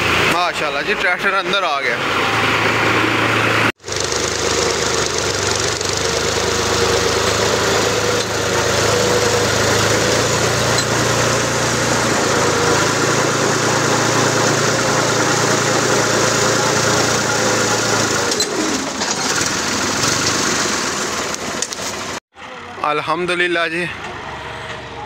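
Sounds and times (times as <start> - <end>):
diesel engine idling: 0.0 - 22.8.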